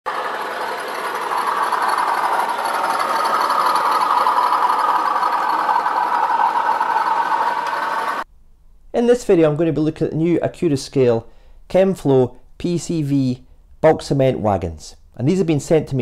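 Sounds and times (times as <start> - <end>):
model train whirring rumble: 0.1 - 8.2.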